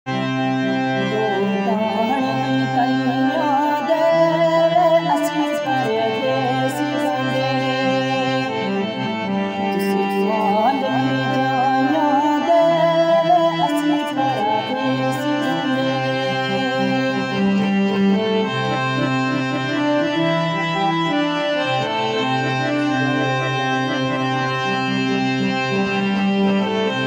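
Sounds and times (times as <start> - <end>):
ornamented folk melody: 0.1 - 27.0.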